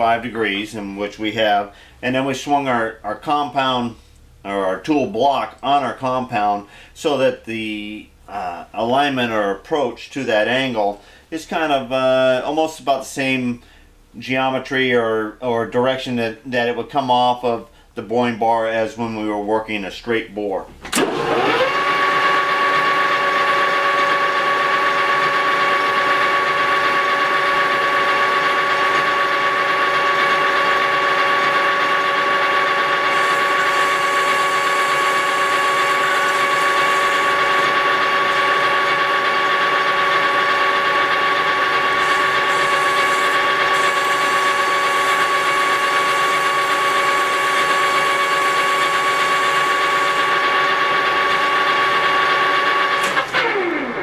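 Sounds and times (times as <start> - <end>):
metal lathe whining: 20.9 - 54.0.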